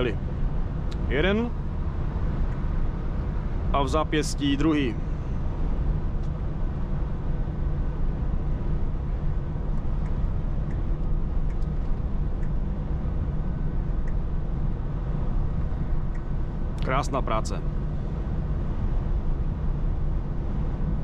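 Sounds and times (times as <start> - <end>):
truck diesel engine droning: 0.0 - 2.0.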